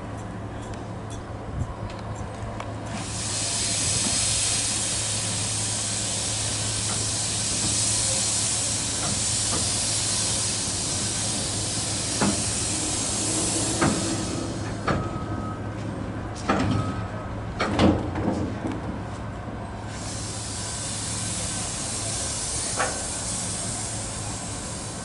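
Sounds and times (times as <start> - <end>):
steam locomotive hissing: 2.9 - 15.7, 19.8 - 25.0.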